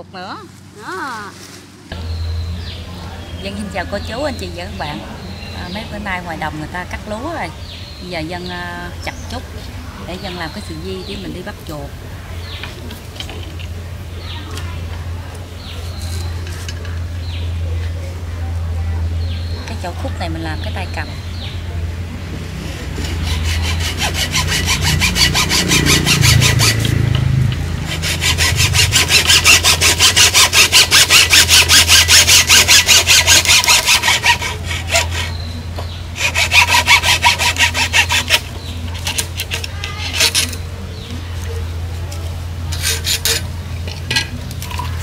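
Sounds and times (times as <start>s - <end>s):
rough scraping: 0.4s - 2.1s, 22.2s - 45.0s
hand saw cutting wood: 22.6s - 40.6s, 42.7s - 43.5s.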